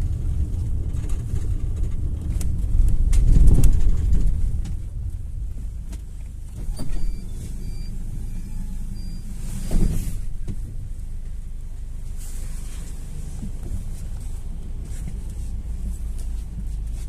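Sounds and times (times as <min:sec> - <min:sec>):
engine and road rumble: 0:00.0 - 0:17.0
cabin rattles and clicks: 0:00.4 - 0:05.1.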